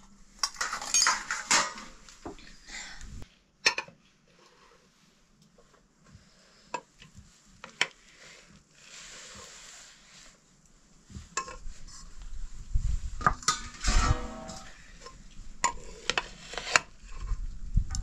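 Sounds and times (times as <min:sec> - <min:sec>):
metal utensils clinking on pan: 0:00.4 - 0:02.0, 0:13.4 - 0:15.0.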